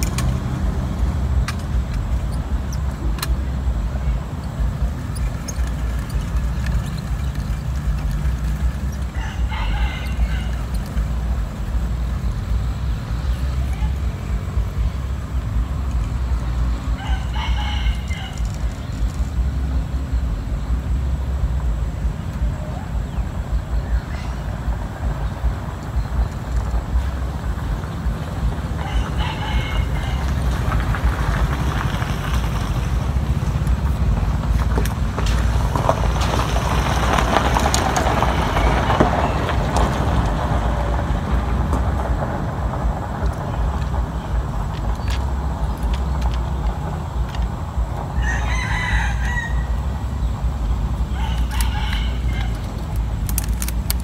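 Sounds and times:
steady low rumble: 0.0s - 54.0s
rooster crowing: 8.9s - 11.2s, 16.8s - 18.9s, 28.7s - 31.3s, 48.1s - 50.0s, 51.1s - 52.8s.

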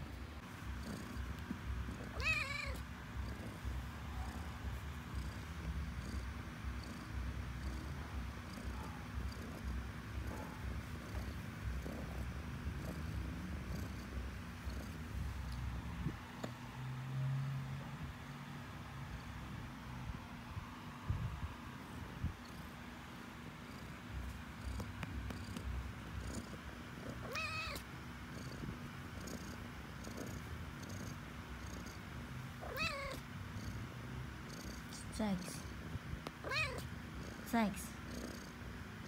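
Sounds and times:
cat purring: 0.0s - 39.0s
cat meow: 2.1s - 2.8s, 27.2s - 27.8s, 32.6s - 33.2s, 36.4s - 36.8s.

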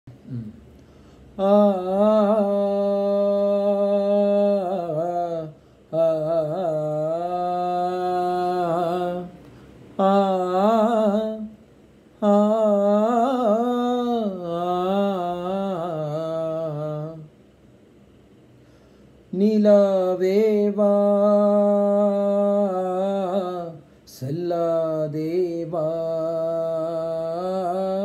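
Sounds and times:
man humming: 0.1s - 0.8s
man breathing: 0.2s - 1.4s, 5.5s - 5.9s, 9.4s - 10.0s, 18.5s - 19.3s.

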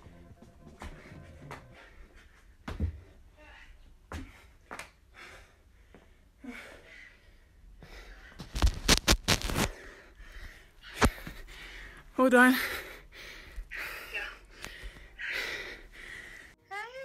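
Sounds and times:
person breathing: 9.6s - 16.6s.

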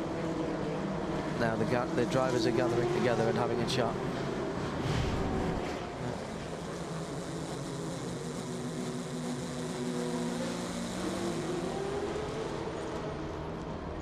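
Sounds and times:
race car engine at speed: 0.0s - 14.0s
wind and road noise: 0.0s - 14.0s.

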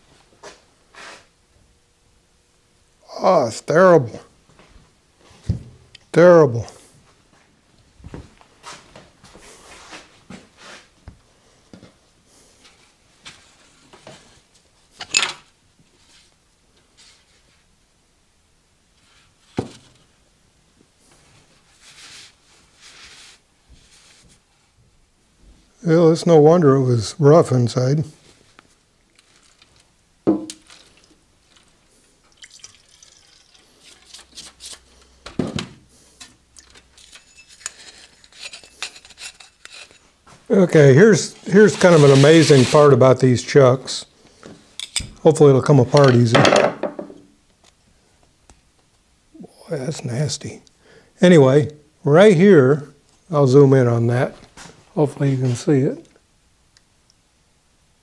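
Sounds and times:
liquid pouring from a metal can: 30.6s - 34.4s
liquid dripping and splashing: 32.2s - 34.4s
rag wiping metal part: 37.2s - 40.0s, 41.4s - 42.9s.

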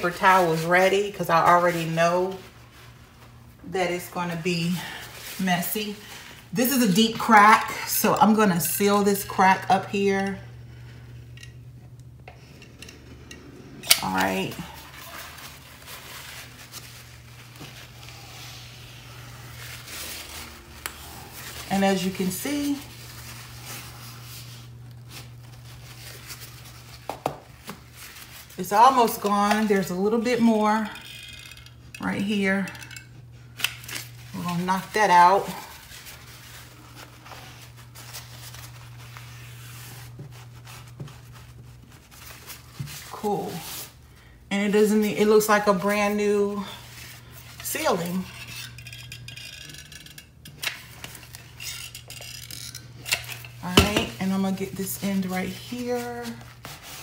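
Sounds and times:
steady low hum: 0.0s - 57.0s
paper towel rubbing: 14.6s - 29.1s, 34.4s - 44.0s, 54.7s - 57.0s.

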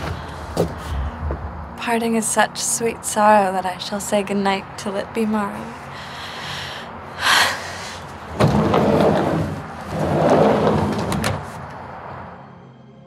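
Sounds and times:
door sliding along track: 8.3s - 11.8s.

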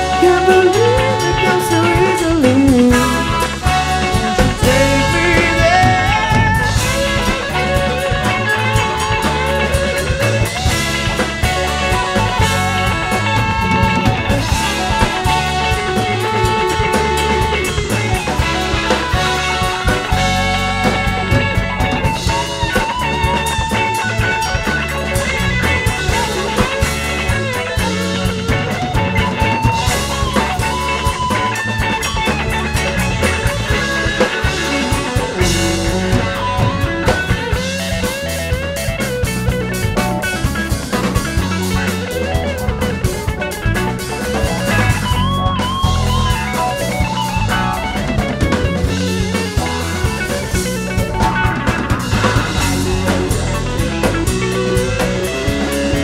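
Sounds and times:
electric guitar lead line bending: 0.0s - 56.0s
live band playing: 0.0s - 56.0s.

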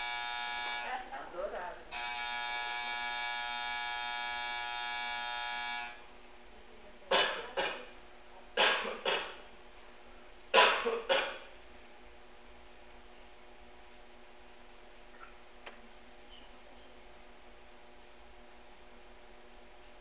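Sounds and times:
electric buzzer: 0.0s - 1.0s, 1.9s - 6.1s.

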